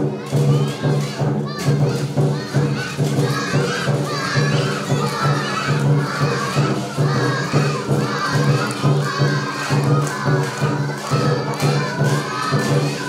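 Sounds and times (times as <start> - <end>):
children shouting and cheering: 0.0 - 13.0.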